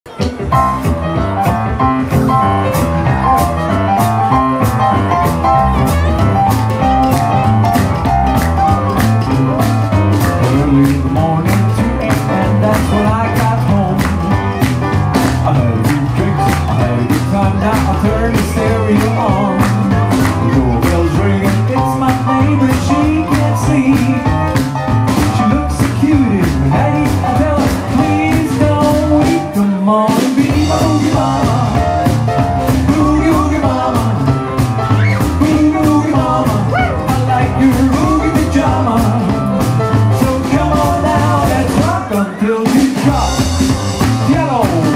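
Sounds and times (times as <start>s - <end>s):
drums: 0.0s - 44.9s
piano: 0.0s - 44.9s
electric guitar: 0.1s - 44.9s
live rock and roll band: 0.1s - 44.9s
slapped upright bass: 0.1s - 44.9s
man singing lead vocal: 9.0s - 44.9s.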